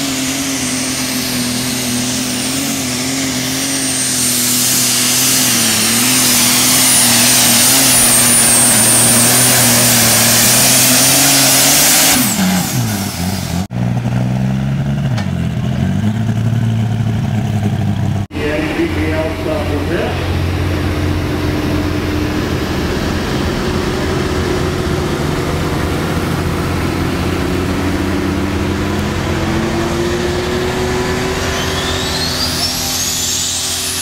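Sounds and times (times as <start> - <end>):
tractor engine running hard: 0.0 - 34.0
thin high whine: 25.7 - 34.0.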